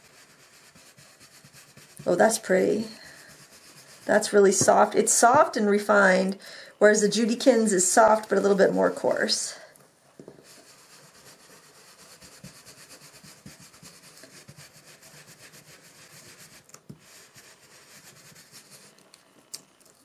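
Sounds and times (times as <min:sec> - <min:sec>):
brush rubbing over stencil: 0:00.0 - 0:05.3, 0:10.4 - 0:19.0.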